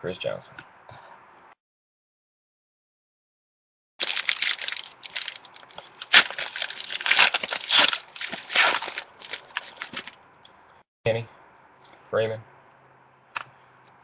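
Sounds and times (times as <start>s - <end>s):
foil wrapper crinkling and tearing: 4.0s - 10.2s.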